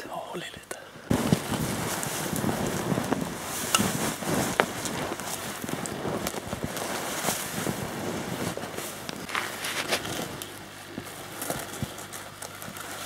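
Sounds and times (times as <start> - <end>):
footsteps in deep snow: 1.1 - 10.4
clothing rustling: 1.1 - 13.0.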